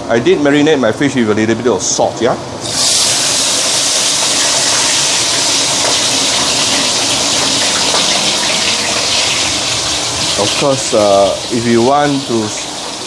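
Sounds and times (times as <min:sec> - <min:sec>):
hot oil sizzling and spattering: 0:02.6 - 0:13.0.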